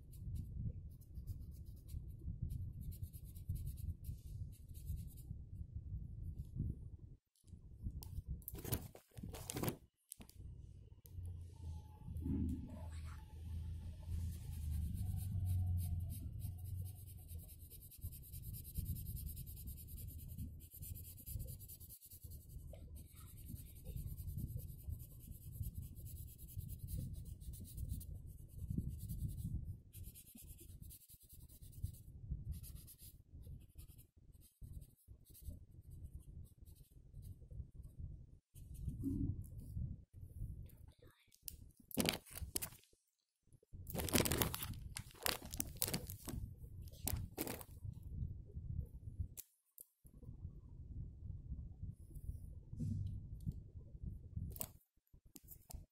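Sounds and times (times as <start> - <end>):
low hum: 10.3 - 17.3, 50.3 - 54.3
marker scribbling on paper: 14.2 - 32.0.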